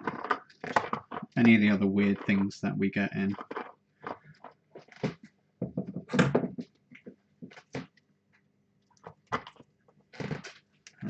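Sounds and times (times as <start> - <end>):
objects knocking on workbench: 5.6 - 6.7.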